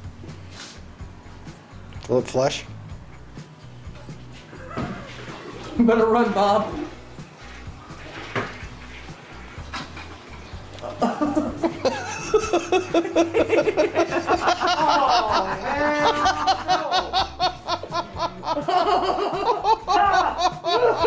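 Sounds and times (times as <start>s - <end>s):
person laughing hard: 10.8s - 21.0s.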